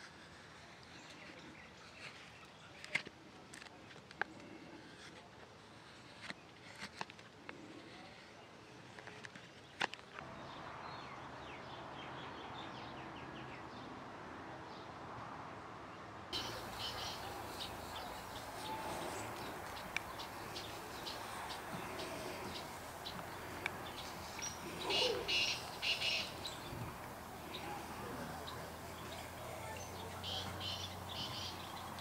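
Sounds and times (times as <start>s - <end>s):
faint birds chirping: 16.3s - 32.0s.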